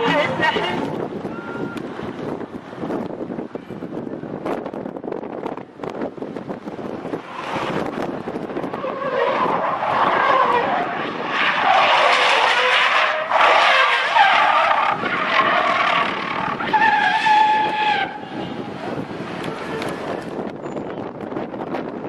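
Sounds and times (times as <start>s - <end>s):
car tyres squealing and skidding: 0.0s - 2.1s, 7.0s - 21.0s.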